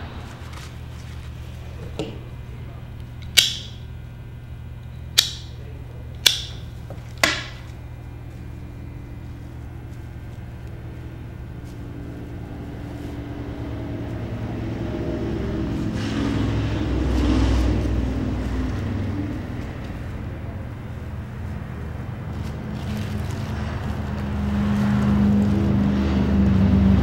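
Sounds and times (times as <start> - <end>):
low rumble: 11.2 - 27.0.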